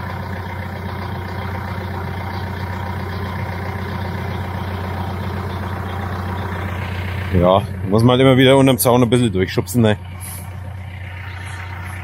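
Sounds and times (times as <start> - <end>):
tractor engine idling: 0.0 - 12.0.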